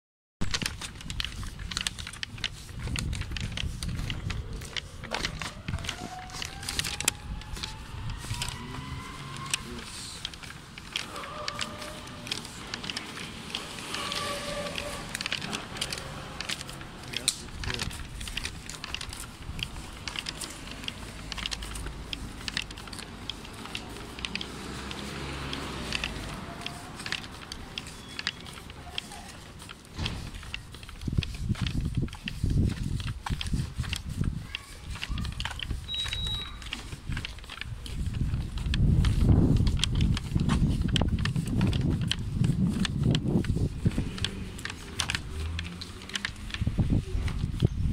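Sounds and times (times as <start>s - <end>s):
footsteps on pavement: 0.4s - 47.9s
low wind rumble on microphone: 0.5s - 10.8s, 29.9s - 47.9s.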